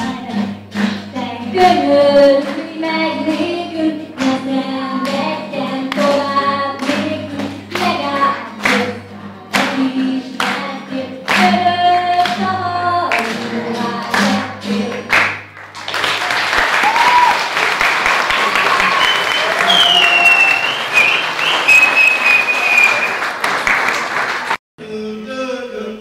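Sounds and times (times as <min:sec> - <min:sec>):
woman singing: 0:00.0 - 0:15.2
strummed acoustic guitar: 0:00.0 - 0:15.6
applause: 0:10.4 - 0:10.6, 0:14.9 - 0:24.6.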